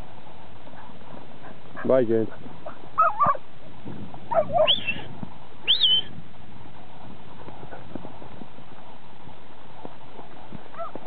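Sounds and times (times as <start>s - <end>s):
faint ticks of moving sheep: 0.0s - 3.4s.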